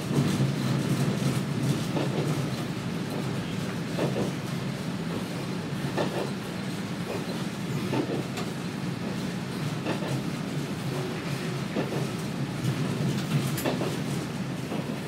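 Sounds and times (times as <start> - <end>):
railcar engine drone: 0.0 - 15.0
wheels clicking over rail joints: 11.8 - 14.0.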